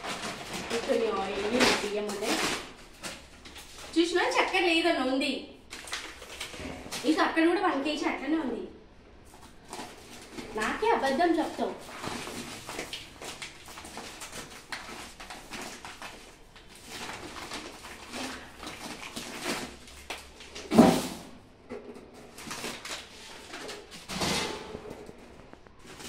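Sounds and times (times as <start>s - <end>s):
plastic bags rustling: 0.0s - 4.8s, 5.6s - 7.3s, 9.2s - 21.5s, 22.1s - 26.0s.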